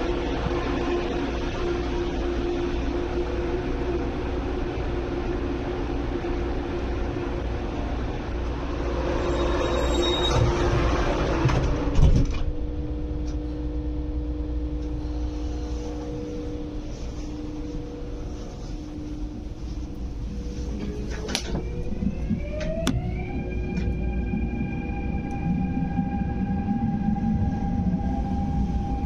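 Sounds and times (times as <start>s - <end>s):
platform air noise: 0.0s - 29.0s
train cabin hum: 0.0s - 29.0s
sliding doors shutting with thump: 10.3s - 12.5s.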